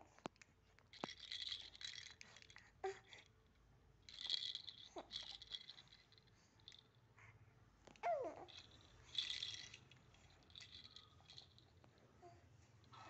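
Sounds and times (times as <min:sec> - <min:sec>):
plastic baby rattle rattling: 0:00.9 - 0:03.2, 0:04.1 - 0:06.8, 0:08.4 - 0:11.7.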